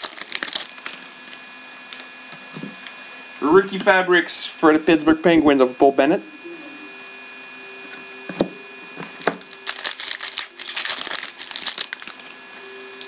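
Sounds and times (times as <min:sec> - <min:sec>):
foil wrapper tearing and crinkling: 0:00.0 - 0:02.0, 0:09.2 - 0:12.4.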